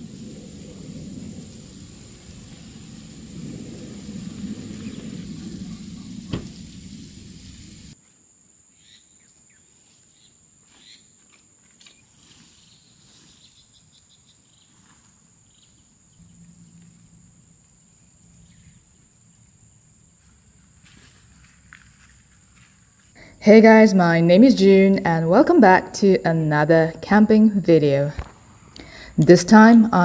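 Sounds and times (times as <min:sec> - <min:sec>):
insect drone: 0:00.0 - 0:30.0
rippling run of notes: 0:16.2 - 0:20.9.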